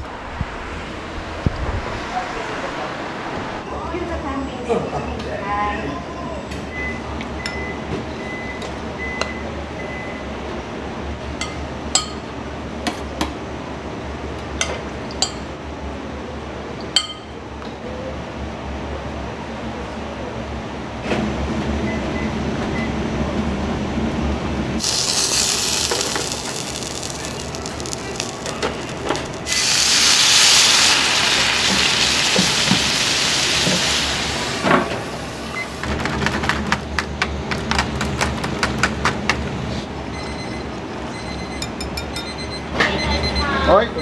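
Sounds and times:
loud hissing: 0:24.8 - 0:35.4
kitchen equipment hum: 0:24.8 - 0:39.8.

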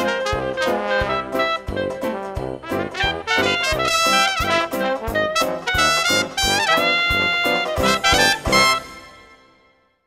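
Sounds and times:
brass band music with trumpets: 0:00.0 - 0:09.7.

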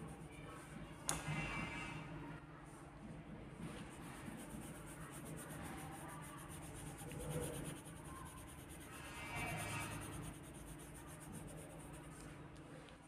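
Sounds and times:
pencil scratching on paper: 0:03.6 - 0:12.4.

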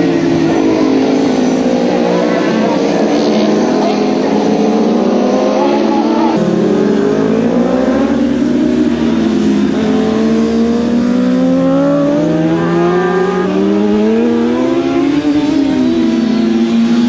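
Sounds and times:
motorcycle engines racing: 0:00.0 - 0:17.0.

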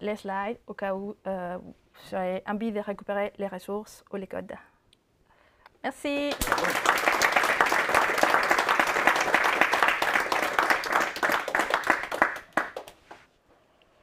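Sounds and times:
audience applauding: 0:06.3 - 0:13.2.

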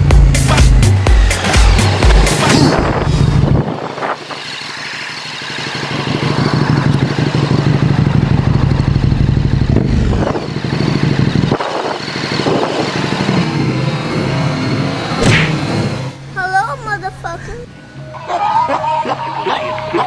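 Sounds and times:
motorcycle engine under throttle: 0:01.0 - 0:16.1.

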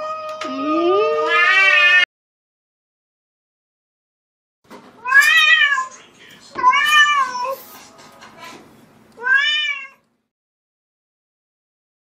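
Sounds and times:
cat meowing: 0:00.0 - 0:02.1, 0:05.0 - 0:05.9, 0:06.6 - 0:07.6, 0:09.2 - 0:10.0.

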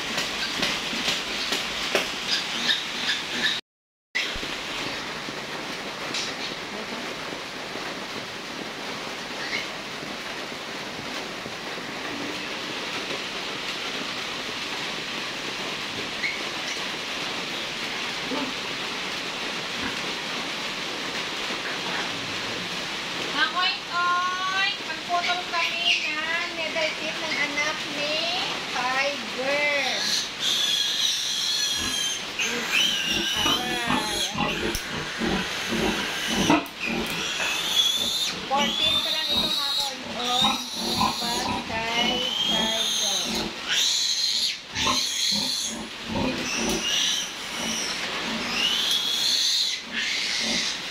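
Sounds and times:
steady rushing hiss: 0:04.3 - 0:50.9
piglet squealing: 0:29.9 - 0:50.8.

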